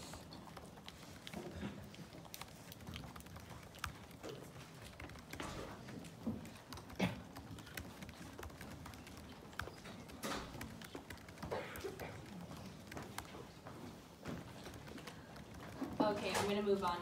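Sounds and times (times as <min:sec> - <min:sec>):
laptop keyboard typing: 0:00.0 - 0:17.0
rustling and shuffling: 0:07.9 - 0:17.0.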